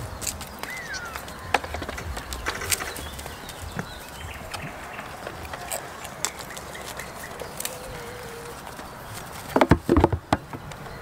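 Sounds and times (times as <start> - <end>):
hooves knocking on plastic tub: 9.5 - 10.7.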